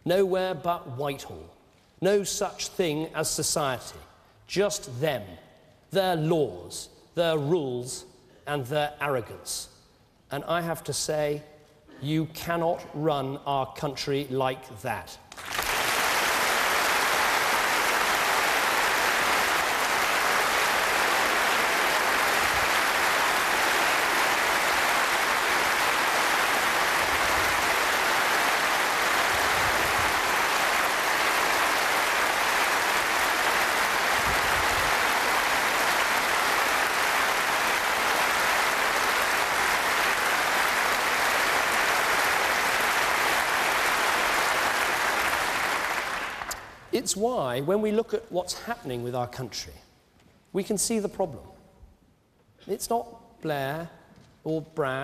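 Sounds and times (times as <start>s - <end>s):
large audience applauding: 15.3s - 46.9s.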